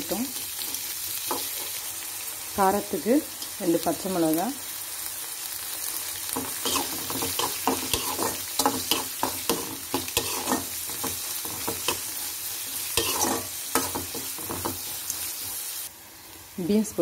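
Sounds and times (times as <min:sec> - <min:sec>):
frying sizzle: 0:00.0 - 0:17.0
spoon scraping metal pan: 0:06.4 - 0:12.2, 0:12.9 - 0:15.0.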